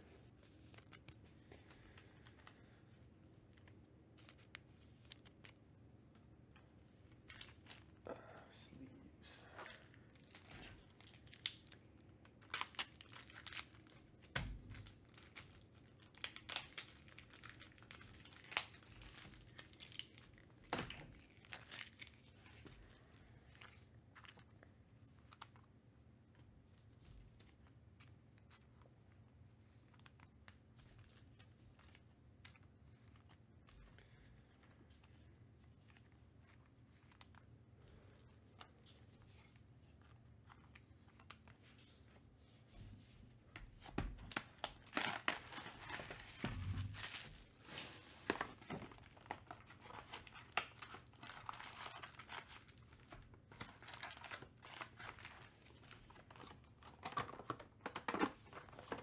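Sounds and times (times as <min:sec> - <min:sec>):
wrapper crinkling and tearing: 0:07.0 - 0:08.0, 0:09.5 - 0:24.5, 0:44.1 - 0:59.0.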